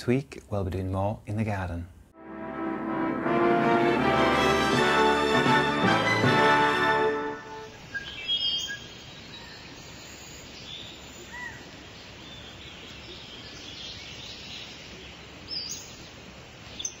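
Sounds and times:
steady background hiss: 0:00.0 - 0:02.8, 0:06.4 - 0:17.0
bird chirps: 0:07.7 - 0:17.0.

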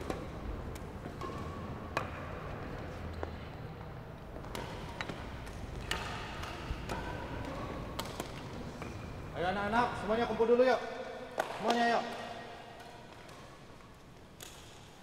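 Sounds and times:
rackets striking shuttlecocks: 0:00.0 - 0:02.4, 0:04.4 - 0:09.2, 0:10.4 - 0:15.0.

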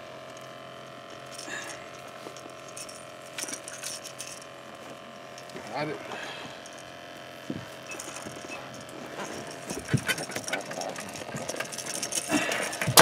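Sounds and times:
steady low hum: 0:00.0 - 0:13.0
knocks and clicks handling fish: 0:07.5 - 0:13.0.

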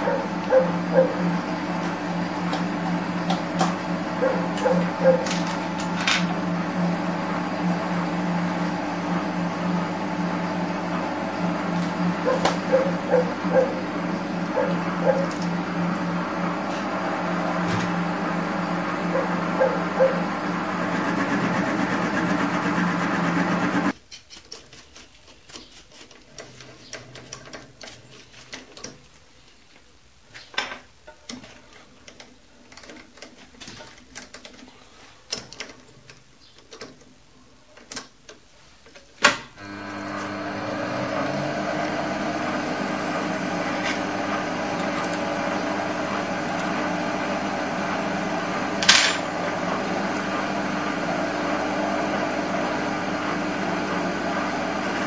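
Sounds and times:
lathe running: 0:00.0 - 0:23.9, 0:39.6 - 0:55.0.

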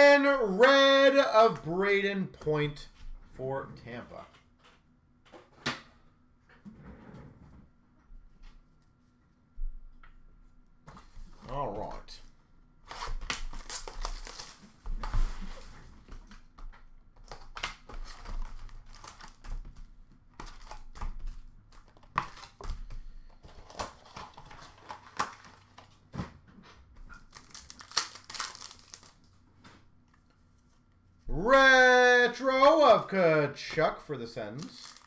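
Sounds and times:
card packs crinkling: 0:12.9 - 0:14.7, 0:17.2 - 0:19.8, 0:20.4 - 0:26.1, 0:27.1 - 0:29.4, 0:34.3 - 0:35.0.

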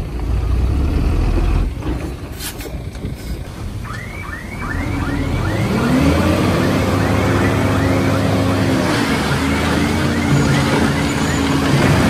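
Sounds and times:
diesel engine revving: 0:00.0 - 0:12.0
short rising squeak: 0:04.0 - 0:12.0.

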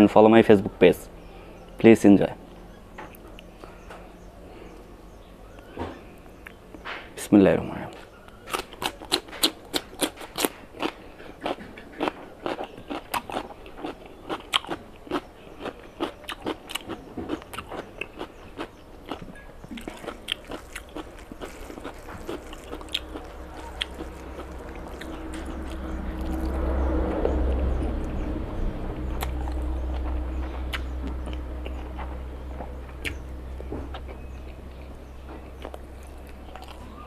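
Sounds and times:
low hum: 0:00.0 - 0:07.2, 0:18.8 - 0:37.0
cucumber crunching: 0:08.5 - 0:26.6.

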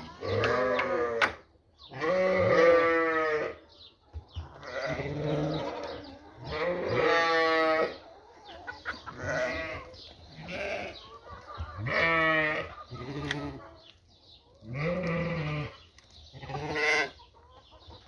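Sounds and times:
sheep bleating: 0:01.9 - 0:03.6, 0:04.6 - 0:08.0, 0:09.2 - 0:11.0, 0:11.8 - 0:13.6, 0:14.6 - 0:17.2.

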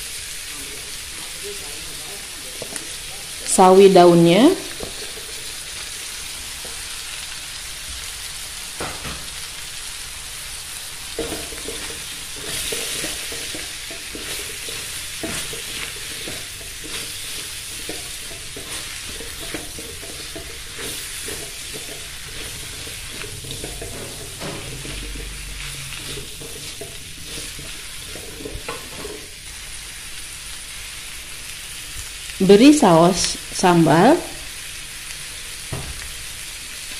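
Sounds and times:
food sizzling in a wok: 0:00.0 - 0:36.9
spatula scraping a pan: 0:04.7 - 0:07.6, 0:10.7 - 0:29.8.

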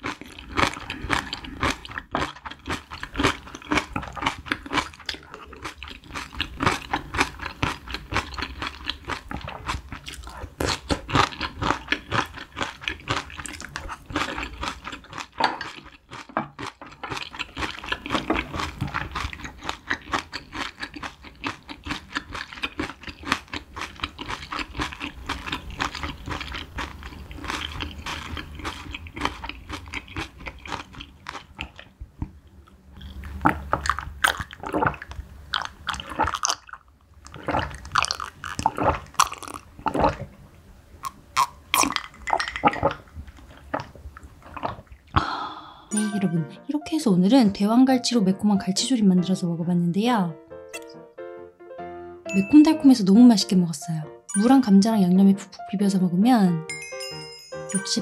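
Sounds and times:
close chewing with mouth clicks: 0:00.0 - 0:40.3, 0:41.0 - 0:45.3.

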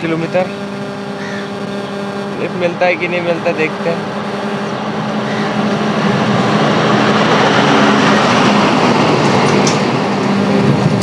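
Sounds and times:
heavy vehicle passing: 0:02.8 - 0:11.0.

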